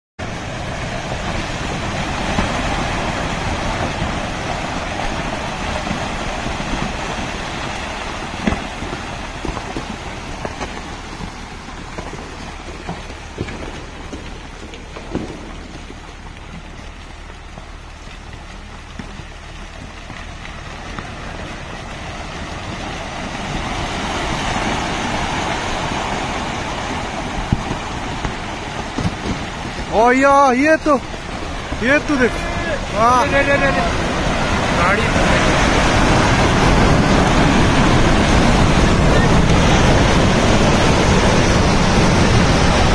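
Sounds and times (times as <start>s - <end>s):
soil and rock rushing downhill: 0.2s - 42.9s
falling stones knocking: 8.2s - 24.8s.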